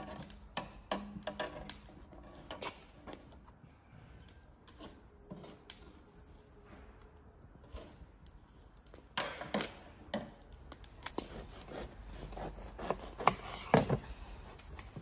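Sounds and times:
knife crunching through bread crust: 11.0s - 14.2s.

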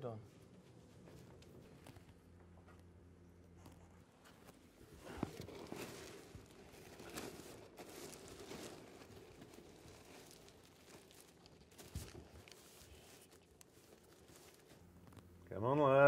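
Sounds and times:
tarpaulin rustling and crinkling: 3.5s - 16.0s.

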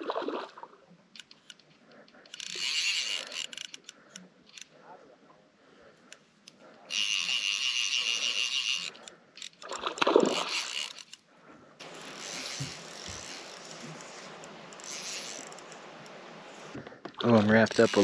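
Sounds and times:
fish splashing: 0.0s - 0.8s, 9.6s - 11.0s
fly reel drag buzzing: 2.3s - 3.9s, 6.9s - 11.2s, 11.8s - 16.8s, 17.6s - 18.0s
quiet steady hiss: 11.0s - 18.0s.

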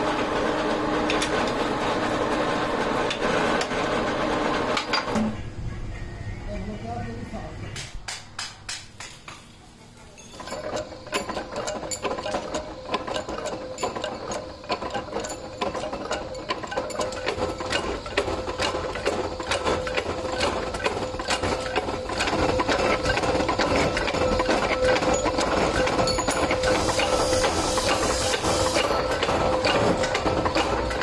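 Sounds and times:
steady mechanical hum: 0.0s - 31.0s
metal press clattering: 10.2s - 31.0s.

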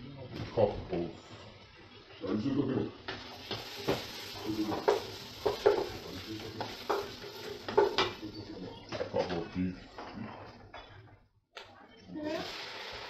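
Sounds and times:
vegetables sizzling: 1.6s - 8.7s, 12.1s - 13.0s.

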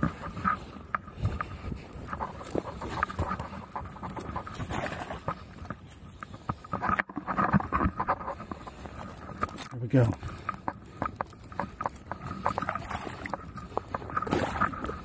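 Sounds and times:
water splash: 12.4s - 15.0s.

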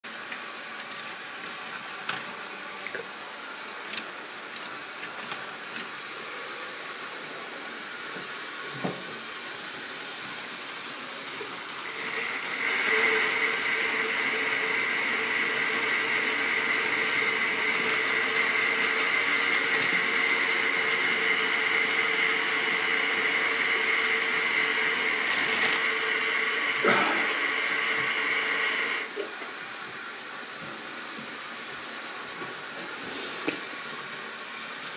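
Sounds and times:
small electric motor whine: 11.9s - 29.1s
model wagons clicking: 16.7s - 20.8s.

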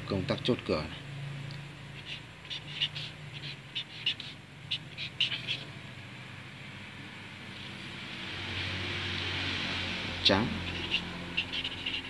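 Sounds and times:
marker squeaking on paper: 1.9s - 5.8s, 10.2s - 12.0s.

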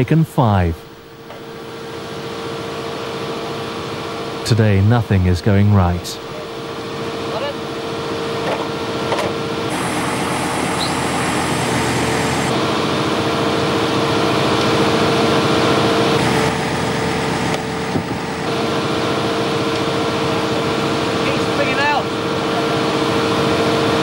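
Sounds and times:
engine drone with whine: 0.0s - 24.0s
brief high hiss: 9.7s - 12.5s.

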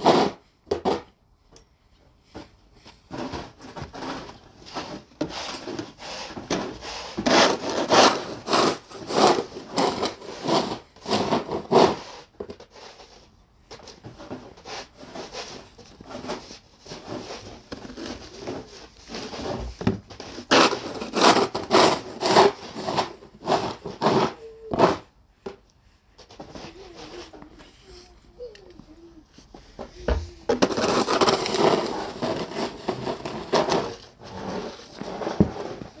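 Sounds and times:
snow shovel scraping snow: 0.0s - 0.4s, 3.1s - 13.0s, 14.6s - 25.1s, 30.5s - 36.0s.

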